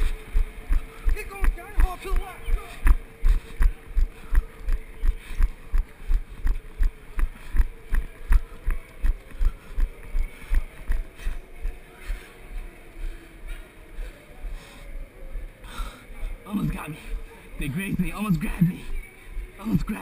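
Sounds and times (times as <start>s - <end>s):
running footsteps: 0.0s - 15.5s.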